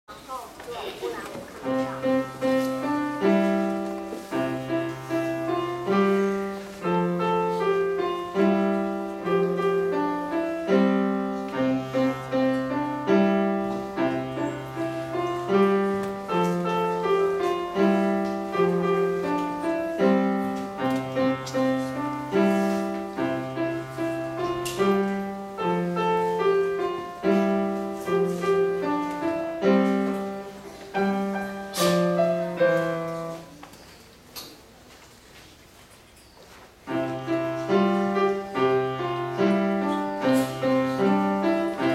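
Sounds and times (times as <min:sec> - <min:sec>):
solo piano melody: 0:01.6 - 0:33.6, 0:36.8 - 0:41.9.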